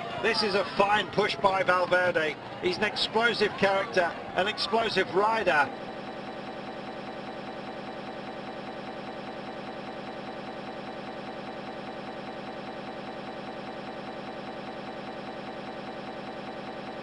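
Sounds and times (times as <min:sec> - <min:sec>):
pulsing buzzing drone: 0:05.7 - 0:17.0.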